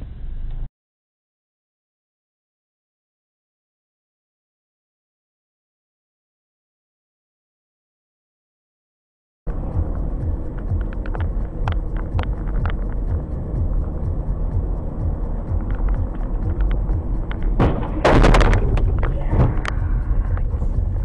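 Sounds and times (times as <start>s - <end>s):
car engine and road rumble: 0.0s - 0.7s, 9.5s - 21.0s
loud crash-like impact: 17.6s - 19.6s.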